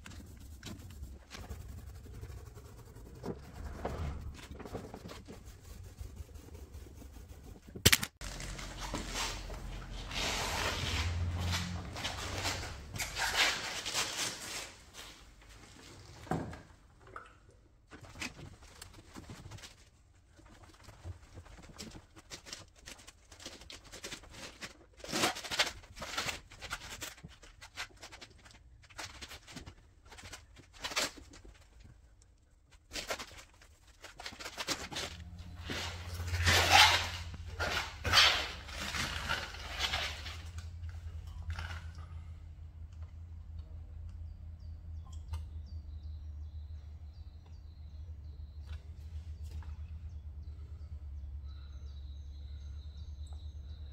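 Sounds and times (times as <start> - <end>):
cloth wiping car paint: 0.0 - 7.8, 8.5 - 15.0.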